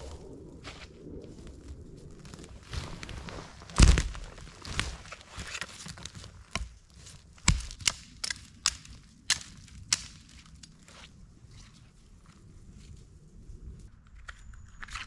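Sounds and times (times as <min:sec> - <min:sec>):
sharp snaps and knocks: 0:03.6 - 0:11.0.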